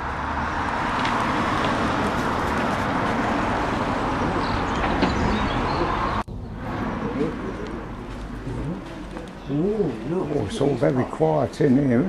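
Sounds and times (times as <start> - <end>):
vehicle rumble and hiss: 0.0 - 9.3.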